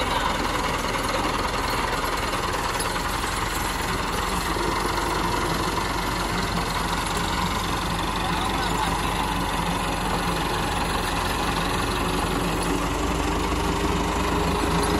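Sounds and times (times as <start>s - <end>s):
tractor diesel engine running: 0.0s - 14.9s
tractor driving through mud: 0.0s - 14.9s.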